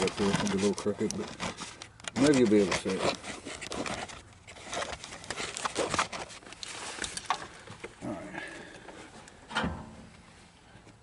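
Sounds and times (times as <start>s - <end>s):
clicks and knocks of handling: 0.0s - 7.9s.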